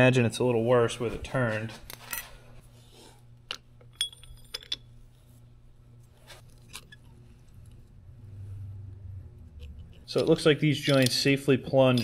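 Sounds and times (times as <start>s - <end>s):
steady low hum: 0.0s - 12.0s
light metallic clicks and clinks: 9.9s - 12.0s.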